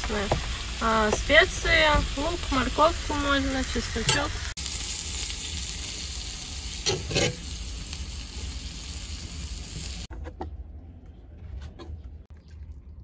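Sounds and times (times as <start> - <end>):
food sizzling in a frying pan: 0.0 - 10.1.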